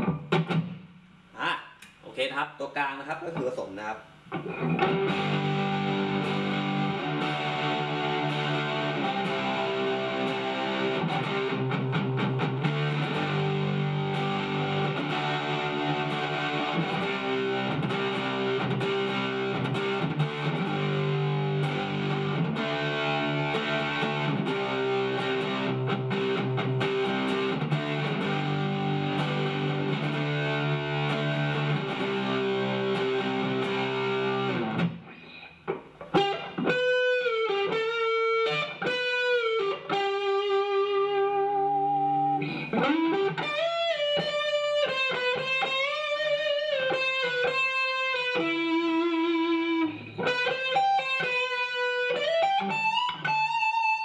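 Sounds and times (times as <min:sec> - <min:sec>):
distorted electric guitar: 0:00.0 - 0:02.4, 0:03.0 - 0:54.0.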